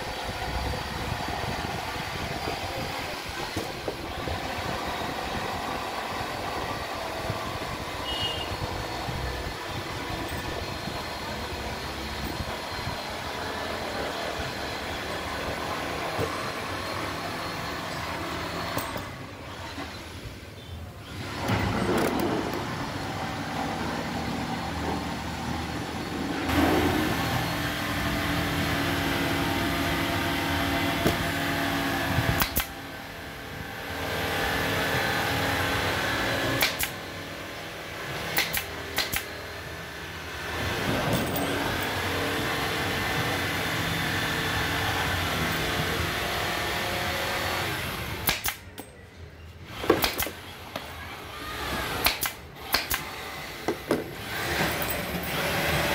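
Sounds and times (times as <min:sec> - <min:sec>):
pneumatic staple gun shots: 0:31.0 - 0:31.4, 0:32.1 - 0:32.8, 0:36.5 - 0:37.1, 0:38.3 - 0:39.4, 0:48.1 - 0:48.8, 0:49.7 - 0:50.5, 0:51.6 - 0:55.0
sharp clicks: 0:32.4 - 0:32.8, 0:36.6 - 0:37.0, 0:38.4 - 0:39.3, 0:48.2 - 0:48.9, 0:52.0 - 0:53.2.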